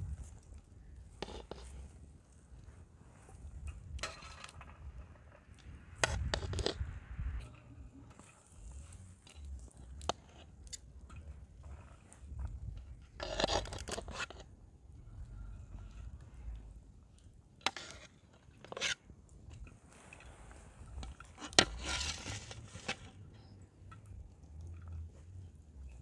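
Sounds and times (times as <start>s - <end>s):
metal skimmer scraping pot: 21.3s - 23.2s.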